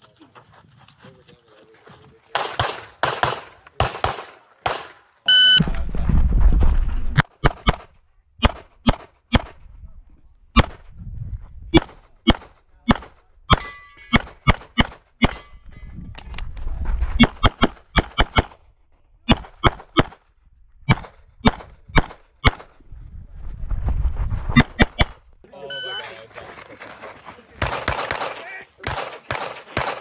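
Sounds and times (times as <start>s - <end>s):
rapid pistol shots: 2.3s - 5.0s, 7.2s - 9.6s, 11.8s - 15.5s, 17.2s - 18.6s, 19.3s - 20.2s, 20.9s - 22.7s, 27.6s - 30.0s.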